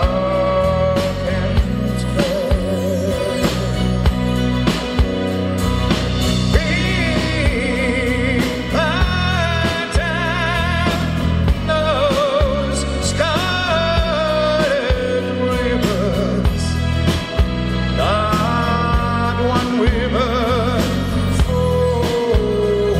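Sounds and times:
man singing with vibrato: 0:00.0 - 0:04.1, 0:06.2 - 0:22.9
live band playing: 0:00.0 - 0:22.9.

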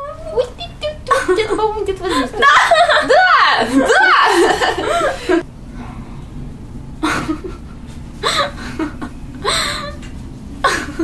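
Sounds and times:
woman laughing: 0:01.0 - 0:05.4, 0:07.0 - 0:11.0.

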